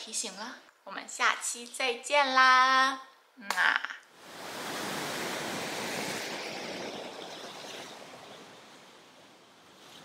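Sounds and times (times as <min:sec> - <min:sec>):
ocean surf washing over rocks: 0:04.2 - 0:09.8.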